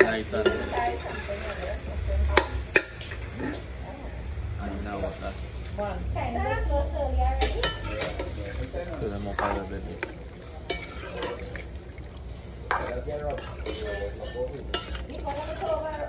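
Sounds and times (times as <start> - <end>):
metal spoon scraping a pot: 0.0 - 3.7, 10.7 - 11.6, 12.7 - 16.0
meat sizzling: 0.0 - 16.0.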